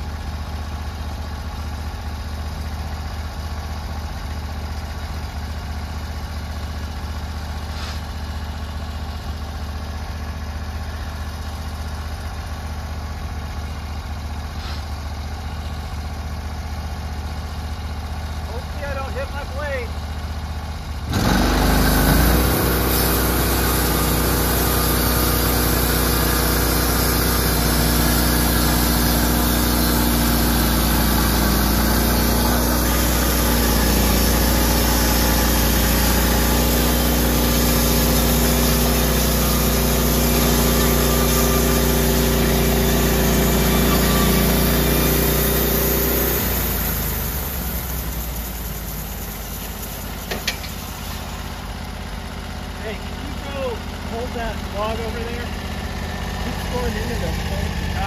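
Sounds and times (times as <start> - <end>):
sawmill engine running: 0.0 - 58.0
band blade sawing log: 21.1 - 48.2.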